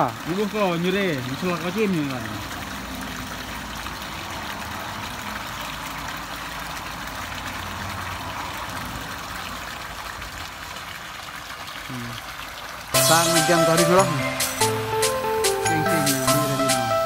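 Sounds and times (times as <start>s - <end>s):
water pouring into a pond: 0.0s - 17.0s.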